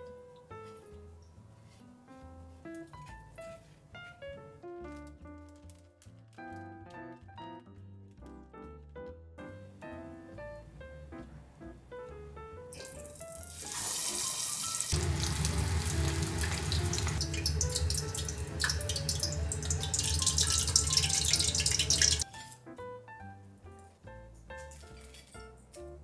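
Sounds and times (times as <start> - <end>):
soft piano music: 0.0 - 26.0
deep-frying sizzle in hot oil: 12.7 - 22.3.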